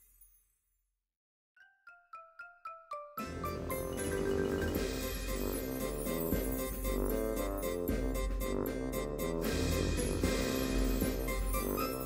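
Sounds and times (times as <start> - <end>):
light instrumental music: 1.6 - 12.0.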